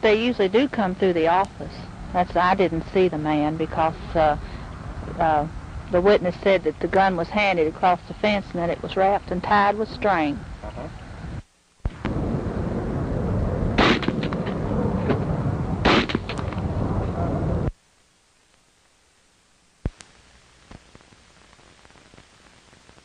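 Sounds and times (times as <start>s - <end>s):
steady rushing noise: 8.2s - 17.8s
sharp crack: 11.8s - 12.3s, 13.7s - 16.7s
rifle shots: 13.8s - 14.5s, 15.8s - 16.4s.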